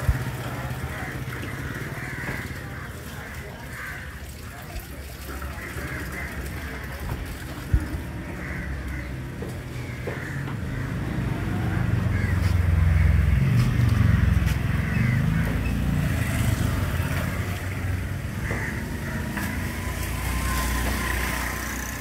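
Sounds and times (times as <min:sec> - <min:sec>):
vehicle engine passing by: 0:09.8 - 0:22.0.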